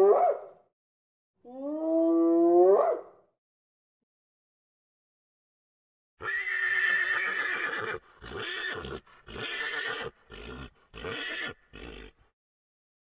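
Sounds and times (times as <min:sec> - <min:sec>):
horse whinnying: 0:06.2 - 0:12.2.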